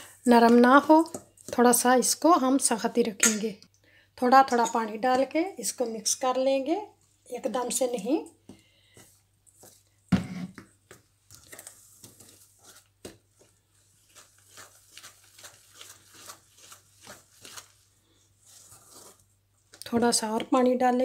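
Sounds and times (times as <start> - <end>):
spoon scraping metal bowl: 4.4 - 5.3.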